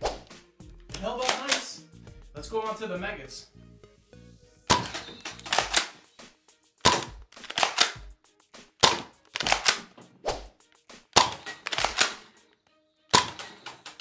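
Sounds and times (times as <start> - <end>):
foam darts hitting plastic targets: 4.7 - 5.9, 6.9 - 8.0, 8.8 - 9.8, 11.2 - 12.2, 13.1 - 14.0
toy blaster firing darts: 4.7 - 6.0, 6.9 - 8.0, 8.8 - 10.0, 11.2 - 12.3, 13.1 - 14.0.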